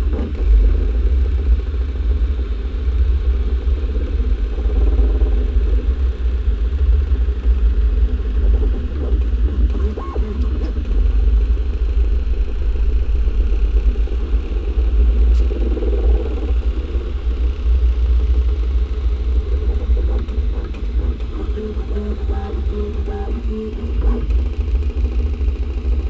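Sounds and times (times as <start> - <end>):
stepper motors whirring: 8.6 - 11.3, 19.2 - 24.8.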